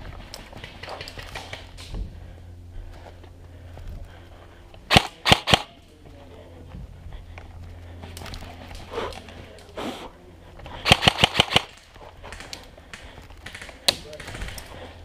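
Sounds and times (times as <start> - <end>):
airsoft rifle shots: 4.9 - 5.8, 10.8 - 14.7.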